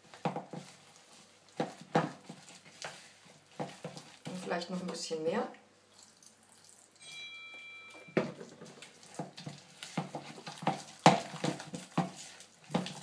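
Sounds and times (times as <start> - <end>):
spoon stirring batter in bowl: 0.0 - 5.3, 8.0 - 13.0.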